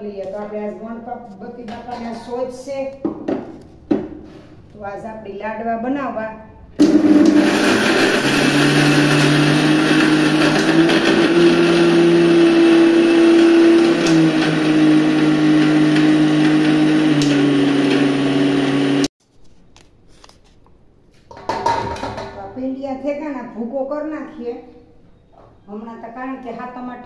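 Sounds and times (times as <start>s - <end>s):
mixer grinder motor running: 6.8s - 19.1s.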